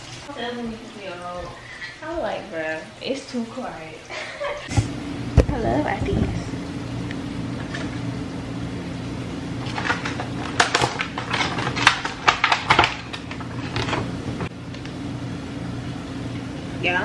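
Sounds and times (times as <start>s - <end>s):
steady low hum: 4.1s - 17.0s.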